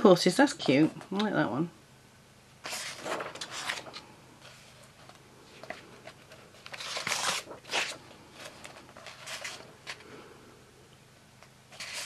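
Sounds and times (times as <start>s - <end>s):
paper pages rustling: 2.6s - 10.1s, 11.7s - 12.0s.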